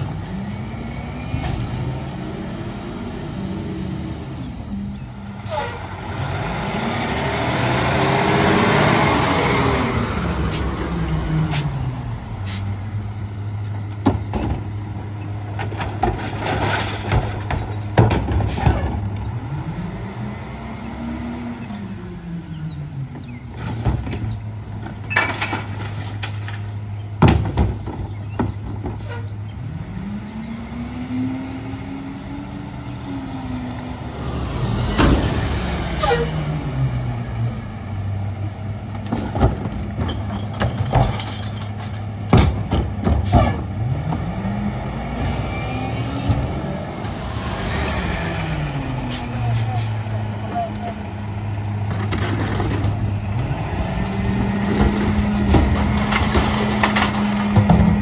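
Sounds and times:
garbage truck diesel engine: 0:00.0 - 0:58.0
bins clanking and banging: 0:13.9 - 0:19.2, 0:23.6 - 0:29.3, 0:39.0 - 0:44.3, 0:51.7 - 0:53.2, 0:54.3 - 0:58.0.

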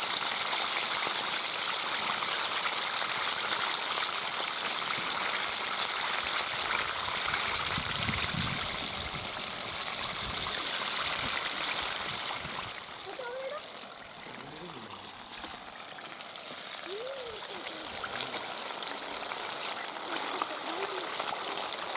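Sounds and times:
chicken deep-frying in oil: 0:00.0 - 0:21.9.

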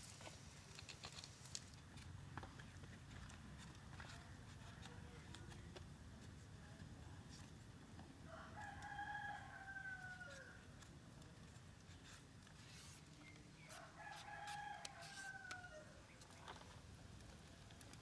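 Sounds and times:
rooster crowing: 0:08.3 - 0:10.6, 0:13.7 - 0:16.0.

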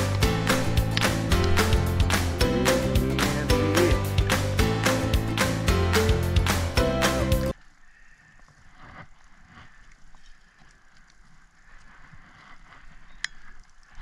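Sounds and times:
background music: 0:00.0 - 0:07.6
soft rustling and handling noises: 0:07.6 - 0:14.0.

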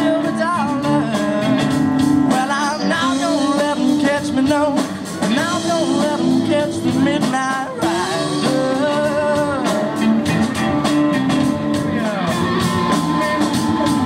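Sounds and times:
drums: 0:00.0 - 0:14.0
electric guitars: 0:00.0 - 0:14.0
boy singing into microphone: 0:02.3 - 0:09.8.

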